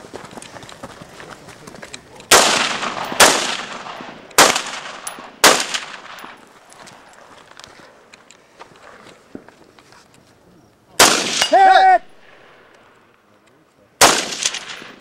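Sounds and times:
rifle shots echoing: 2.3s - 6.4s, 11.0s - 12.9s, 14.0s - 15.0s.

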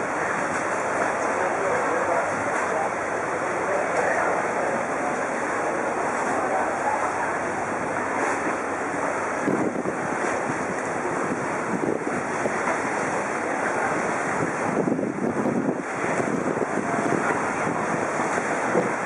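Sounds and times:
river water lapping against pier: 0.0s - 19.0s
wind buffeting microphone: 6.0s - 19.0s.

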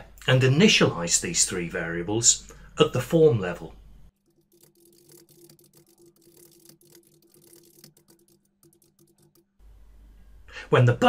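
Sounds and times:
low steady hum: 1.4s - 10.7s
keyboard typing: 4.2s - 9.5s.

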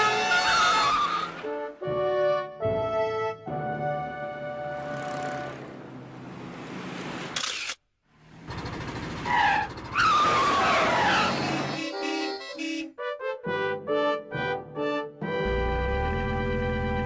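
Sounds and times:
tyres squealing: 0.0s - 1.5s, 9.2s - 12.9s
car engine rumbling: 8.2s - 11.7s.

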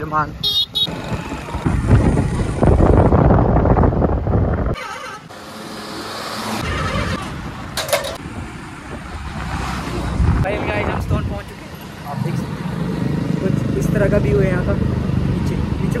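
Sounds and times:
traffic noise: 0.0s - 16.0s
vehicle road noise: 0.0s - 16.0s
wind buffeting microphone: 1.0s - 4.8s, 6.9s - 11.6s.

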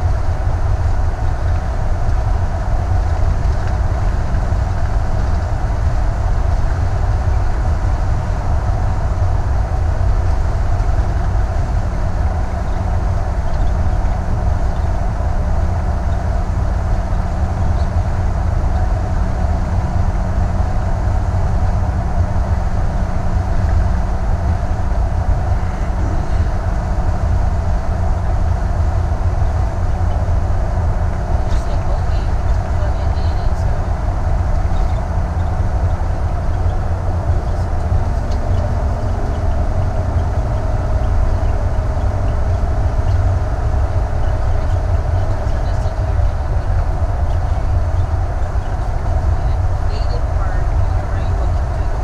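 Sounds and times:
faint steady hum: 0.0s - 52.0s
motorhome driving on highway: 0.0s - 52.0s.

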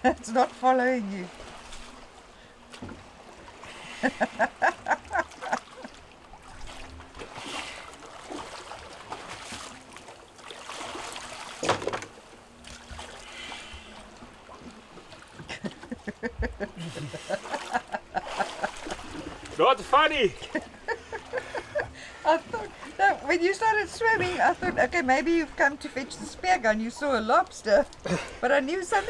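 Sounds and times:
water splashing and sloshing: 0.0s - 29.0s
person laughing: 3.9s - 6.0s, 15.5s - 19.1s, 20.4s - 22.7s.

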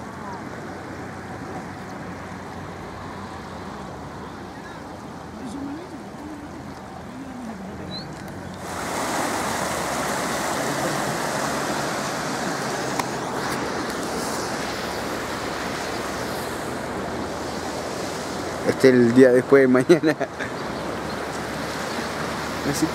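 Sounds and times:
floodwater rushing: 0.0s - 22.9s.

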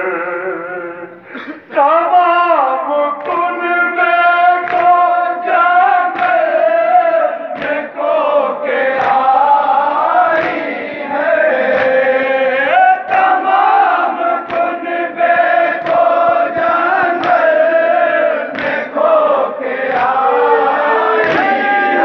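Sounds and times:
men chanting in unison: 1.7s - 22.0s
hand slaps on chests: 3.2s - 3.6s, 4.6s - 5.1s, 6.1s - 6.5s, 7.5s - 8.0s, 8.8s - 9.4s, 10.3s - 10.9s, 11.6s - 12.1s, 13.0s - 17.6s, 18.5s - 19.1s, 19.8s - 20.3s, 21.2s - 21.8s.

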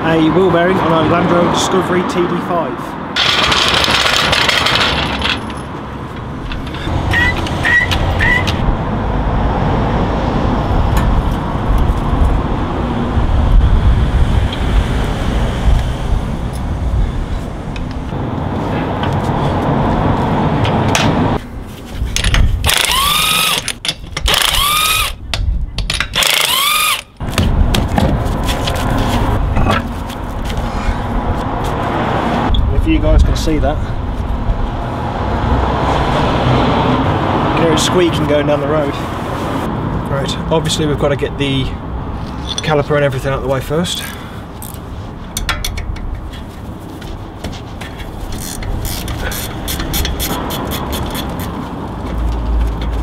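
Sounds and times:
trolley jack being pumped: 3.2s - 5.4s, 22.2s - 25.2s, 25.9s - 27.1s, 48.3s - 51.6s.

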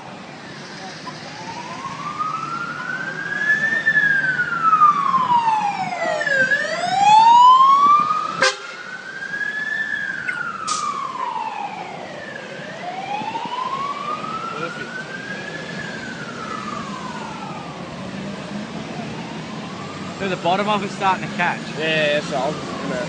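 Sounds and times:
emergency vehicle siren wailing: 0.0s - 23.0s.

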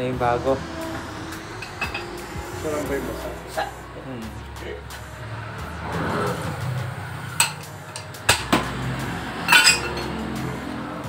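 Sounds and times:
metallic clinks of tools: 9.5s - 10.1s.

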